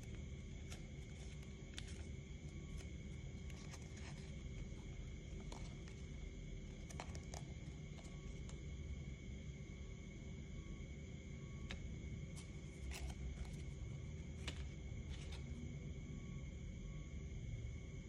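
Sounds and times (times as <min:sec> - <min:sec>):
paper crinkling and creasing: 0:00.0 - 0:08.6, 0:12.3 - 0:15.6
faint high-pitched tones: 0:00.0 - 0:18.0
low background hum: 0:00.0 - 0:18.0.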